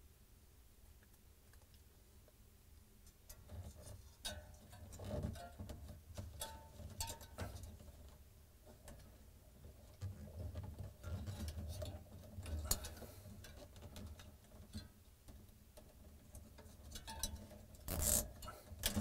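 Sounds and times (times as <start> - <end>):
plastic zip tie clicks and rustles: 17.8 - 19.0.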